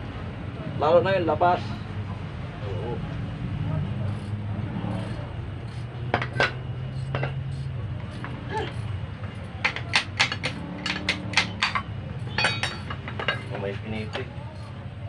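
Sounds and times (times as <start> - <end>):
metal parts clinking: 4.1 - 14.8.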